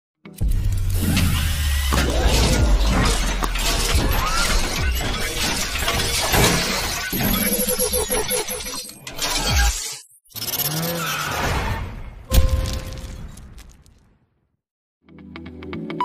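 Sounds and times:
music: 0:00.2 - 0:06.4, 0:15.0 - 0:16.0
glass shattering: 0:02.2 - 0:07.5, 0:12.3 - 0:14.0
impact effects: 0:12.2 - 0:14.2.

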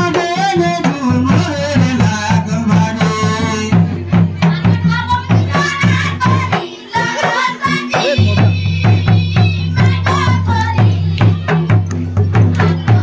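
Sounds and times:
deep drum beat: 0:00.0 - 0:13.0
other instruments: 0:00.0 - 0:13.0
person singing: 0:04.5 - 0:11.8.

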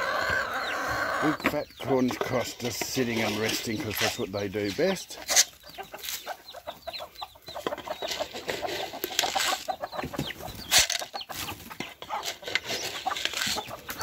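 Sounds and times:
hens and roosters clucking: 0:00.0 - 0:14.0.

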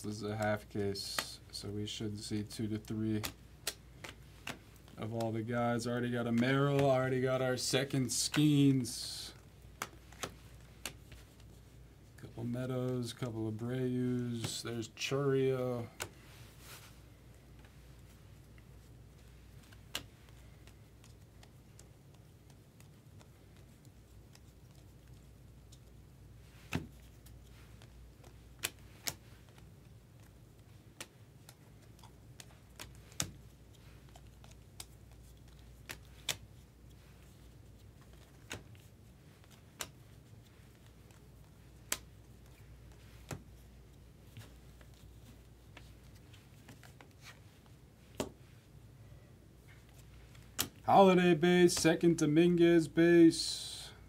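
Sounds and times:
cards clicking and snapping: 0:02.7 - 0:05.4, 0:06.3 - 0:07.0, 0:09.4 - 0:11.6, 0:15.8 - 0:16.2, 0:17.3 - 0:48.6, 0:49.7 - 0:50.8.

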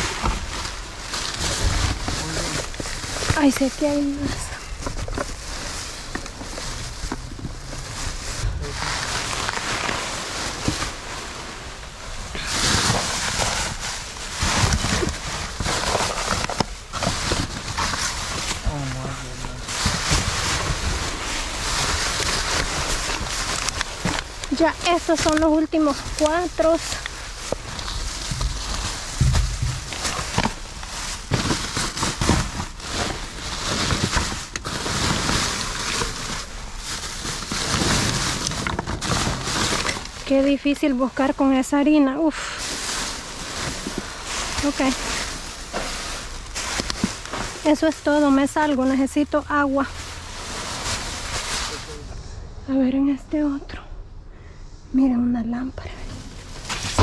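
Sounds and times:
trash bags rustling and crinkling: 0:00.0 - 0:53.6, 0:55.6 - 0:57.0
knocks and clatters: 0:28.3 - 0:30.6.

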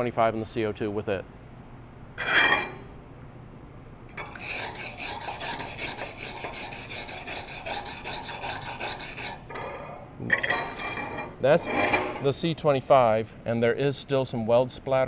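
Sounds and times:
wire brush scrubbing steel: 0:04.2 - 0:12.3.

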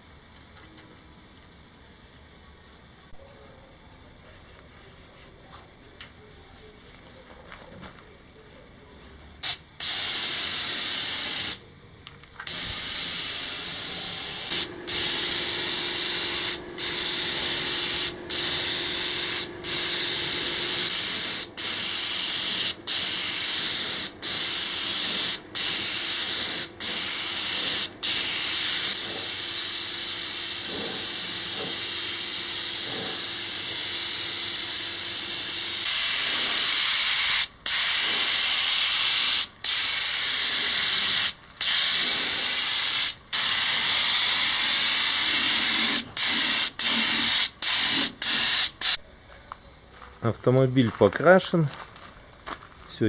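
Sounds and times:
paint spray gun hissing: 0:09.4 - 0:11.6, 0:12.4 - 0:49.0.

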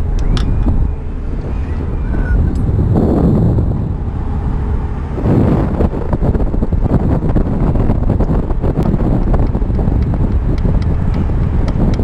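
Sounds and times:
wind buffeting microphone: 0:00.0 - 0:12.0.

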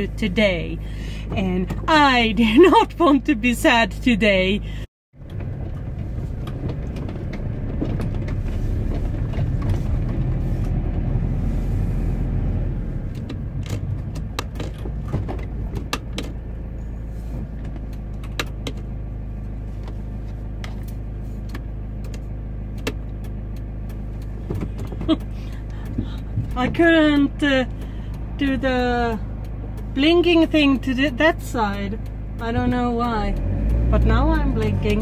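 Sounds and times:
engine humming: 0:00.0 - 0:35.0
light clicks and ticks: 0:20.6 - 0:35.0.

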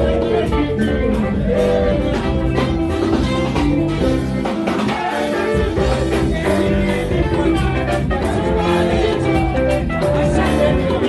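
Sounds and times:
live band with drum kit: 0:00.0 - 0:11.0
women singing: 0:04.8 - 0:11.0.

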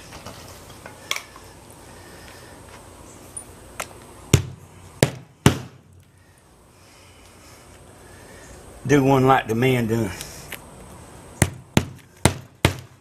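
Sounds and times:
hammer striking nail: 0:04.4 - 0:05.8, 0:11.4 - 0:13.0.

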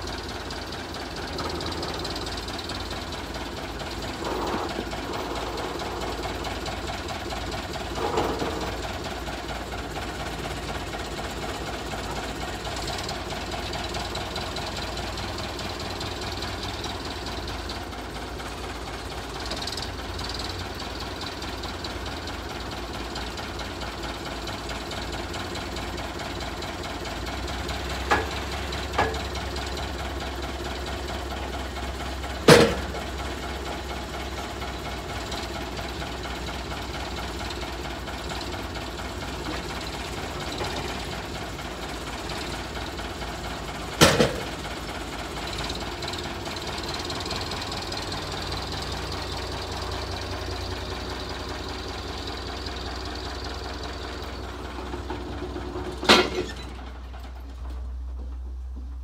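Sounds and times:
backhoe engine running: 0:00.0 - 0:59.0
log banging on steel: 0:28.0 - 0:29.5, 0:32.4 - 0:33.2.

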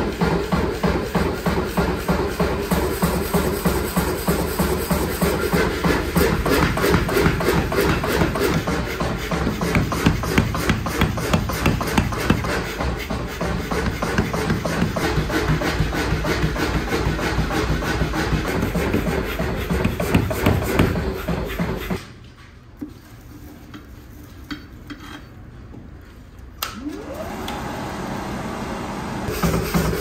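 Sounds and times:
power hammer pounding metal: 0:00.0 - 0:22.0
electric blower whine and rush: 0:26.8 - 0:29.3.

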